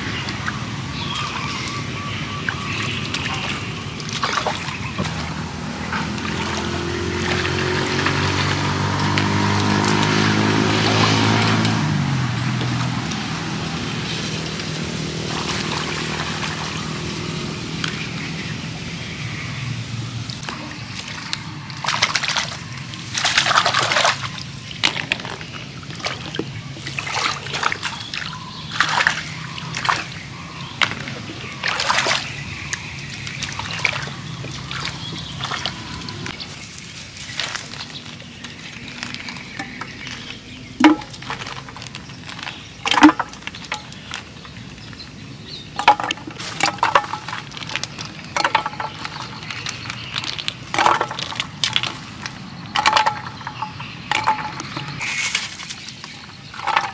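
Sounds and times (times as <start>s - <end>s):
hands splashing in shallow water: 2.5s - 11.8s, 20.3s - 44.6s.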